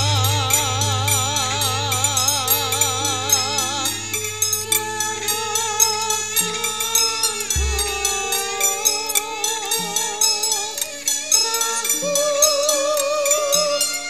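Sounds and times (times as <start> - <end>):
gamelan music: 0.0 - 14.0.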